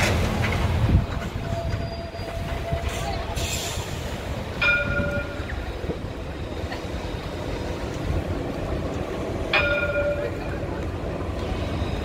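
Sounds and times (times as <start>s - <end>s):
tram rumble: 0.0s - 12.0s
tram warning bell: 4.4s - 12.0s.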